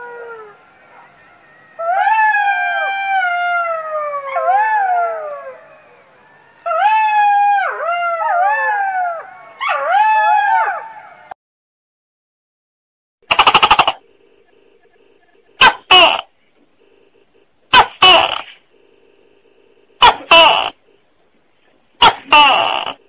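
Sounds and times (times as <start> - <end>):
jackal howling: 0.0 - 11.3.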